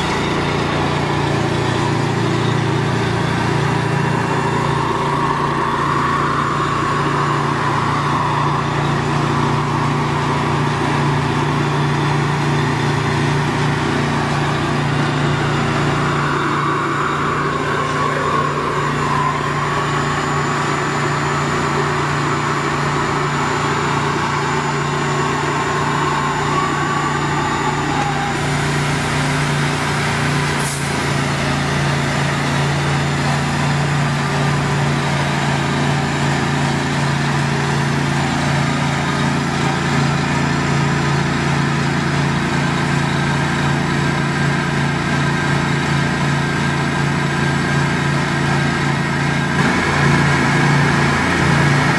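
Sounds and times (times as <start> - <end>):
faint wavering whine: 0.0 - 29.7
small engine running: 0.0 - 51.9.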